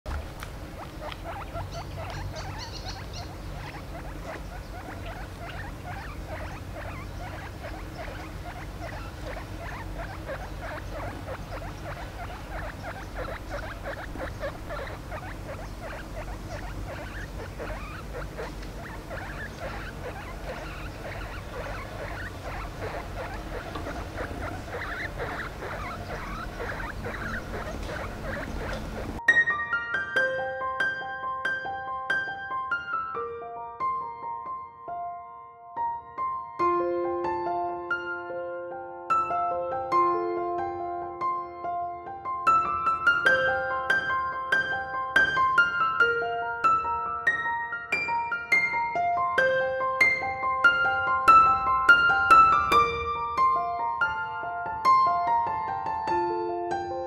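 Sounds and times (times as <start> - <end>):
guinea pig squeaking: 0.7 - 29.3.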